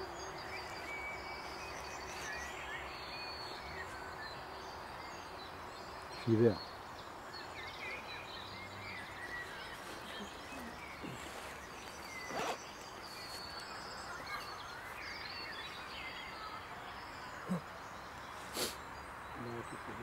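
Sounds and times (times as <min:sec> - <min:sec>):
bird chirps: 0:00.0 - 0:20.0
steady hiss: 0:18.4 - 0:19.0.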